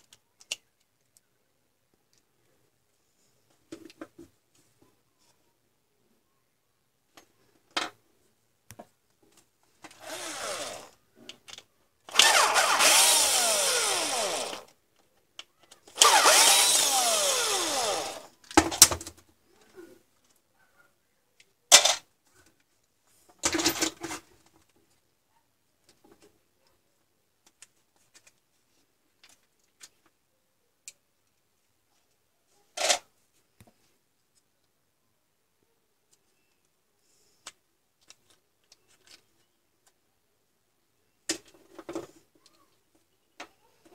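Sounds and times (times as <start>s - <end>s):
power tool motor whine: 10.0s - 11.0s, 12.1s - 14.7s, 16.0s - 18.3s.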